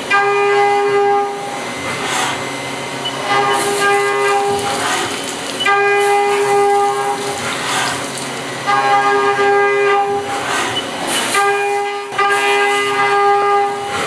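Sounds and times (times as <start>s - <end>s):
coolant spray hissing: 3.3s - 8.8s.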